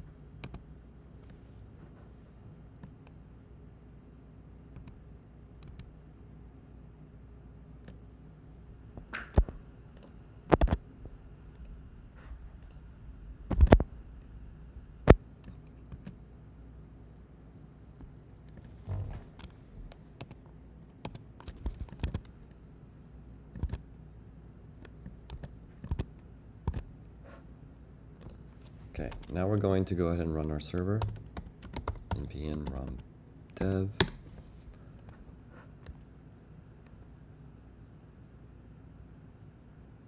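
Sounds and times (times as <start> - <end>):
keyboard keystrokes: 20.2 - 22.3, 23.5 - 23.8, 24.8 - 26.9, 30.7 - 33.0.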